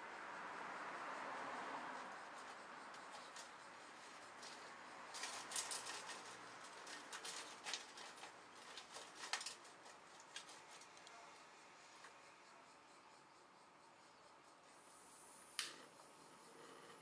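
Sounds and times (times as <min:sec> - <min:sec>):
dry twigs rustling: 0:04.4 - 0:11.0.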